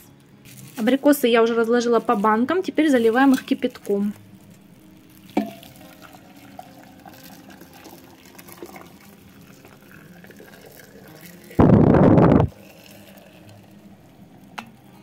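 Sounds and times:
water rushing into glass jar: 5.1s - 14.2s.

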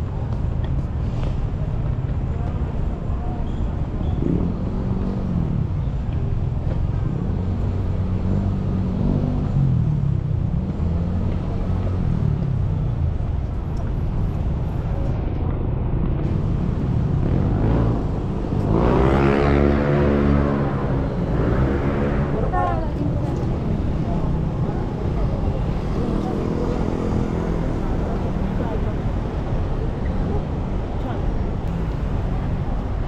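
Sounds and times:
passing motor vehicles: 0.0s - 33.0s
faint voices: 19.7s - 33.0s.

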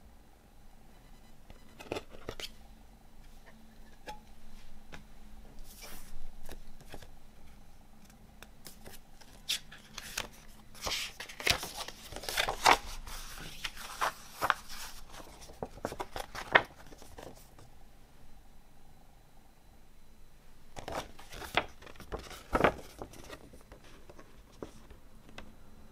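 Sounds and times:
paper rustling and crackling: 8.0s - 17.7s, 20.8s - 25.0s.

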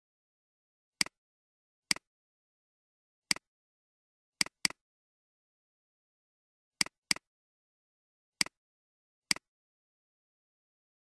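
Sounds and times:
computer mouse clicks: 1.0s - 1.2s, 6.8s - 7.3s, 8.4s - 8.6s.

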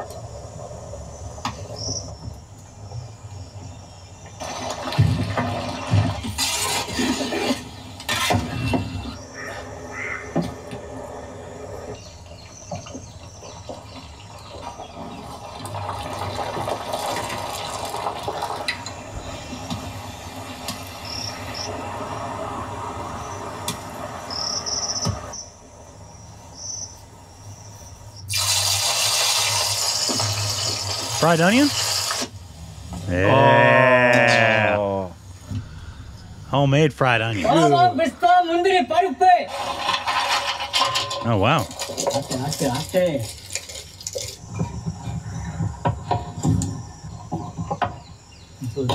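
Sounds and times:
chicken deep-frying in oil: 12.3s - 24.6s, 28.3s - 32.3s, 41.2s - 45.3s
water splashing in a bowl: 41.4s - 44.8s.

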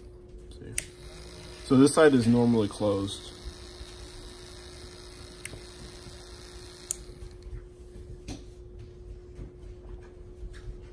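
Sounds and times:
steady hum: 0.0s - 10.9s
faint relay clicks: 6.8s - 7.1s.

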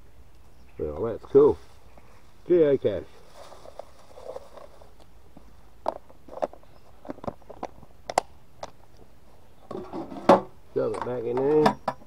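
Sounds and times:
plastic rustle: 3.1s - 5.0s.

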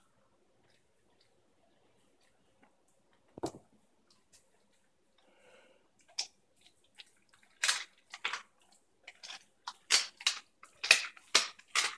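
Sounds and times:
dog chewing bones: 7.0s - 11.9s.

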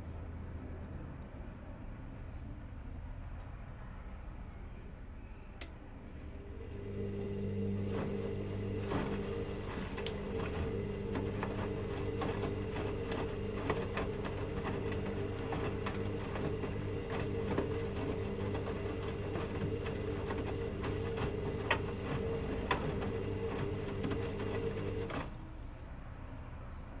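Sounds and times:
washing machine drum motor hum: 6.3s - 25.6s
wet laundry knocking in drum: 7.9s - 25.1s.

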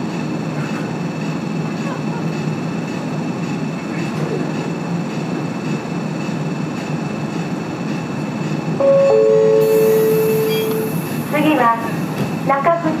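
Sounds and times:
tram running hum: 0.0s - 13.0s
loud signal tone: 8.8s - 11.0s
hiss of air: 9.7s - 11.5s.

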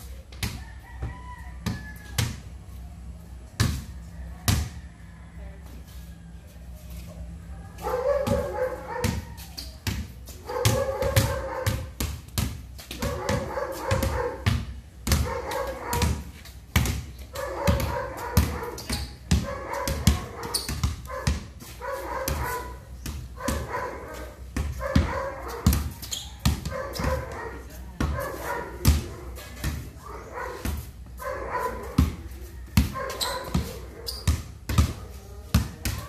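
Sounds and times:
basketball bouncing on concrete: 0.2s - 2.6s, 3.4s - 4.9s, 7.8s - 36.0s.

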